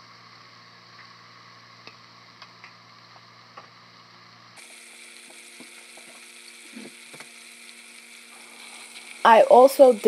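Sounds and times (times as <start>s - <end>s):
chicken sizzling in hot oil: 0.0s - 10.0s.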